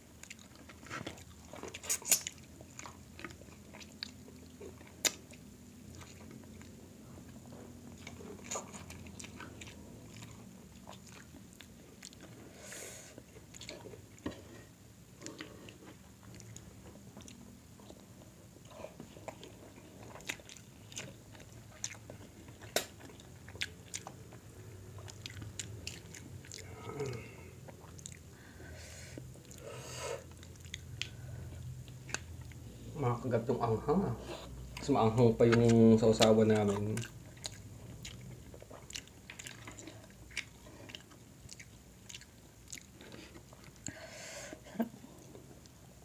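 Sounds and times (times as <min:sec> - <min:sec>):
chewing and mouth smacks: 0:00.1 - 0:12.4, 0:13.2 - 0:14.5, 0:15.2 - 0:28.3, 0:29.2 - 0:29.6, 0:30.2 - 0:32.6, 0:34.5 - 0:44.0.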